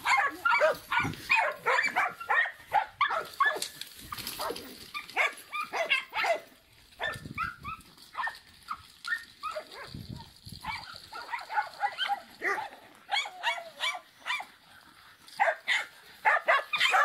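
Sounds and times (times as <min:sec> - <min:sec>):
dog yapping: 0:00.0 - 0:03.7, 0:04.4 - 0:06.4, 0:15.4 - 0:17.0.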